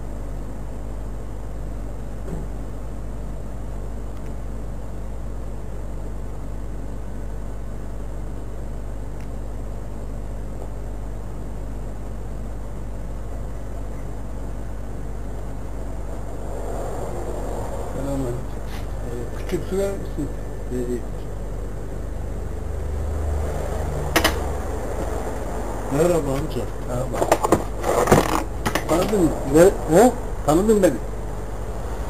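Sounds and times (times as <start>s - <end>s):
low hum with hiss: 0.0s - 32.0s.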